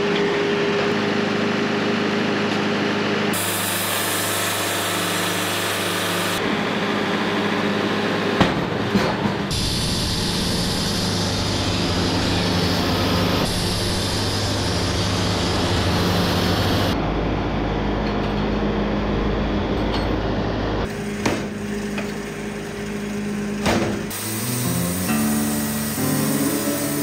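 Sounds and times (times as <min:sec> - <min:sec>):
steady machine hum: 0:00.0 - 0:27.0
band saw blade cutting log: 0:24.1 - 0:27.0.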